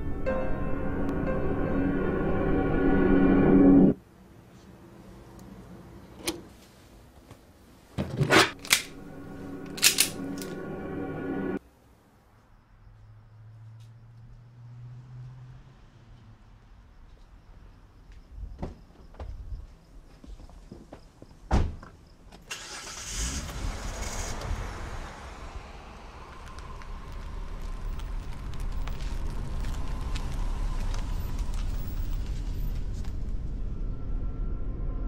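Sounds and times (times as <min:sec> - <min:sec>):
car engine starting and running: 0:08.2 - 0:11.6, 0:22.5 - 0:34.8.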